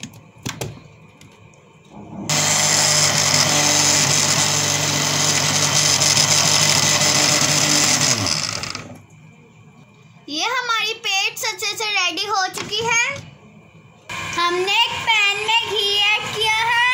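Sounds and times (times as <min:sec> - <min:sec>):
electric blender running: 0:02.3 - 0:09.0, 0:14.1 - 0:16.9.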